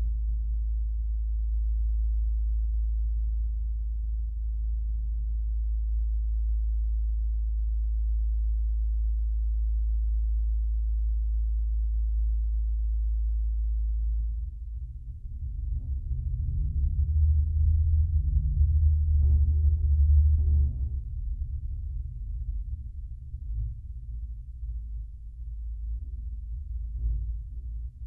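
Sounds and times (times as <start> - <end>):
wind rumbling in metal chimney: 14.5 - 28.0.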